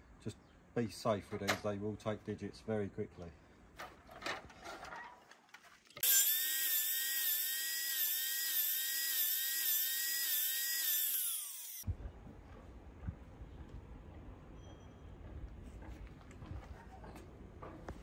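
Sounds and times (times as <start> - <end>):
mitre saw whining: 6.0 - 11.8.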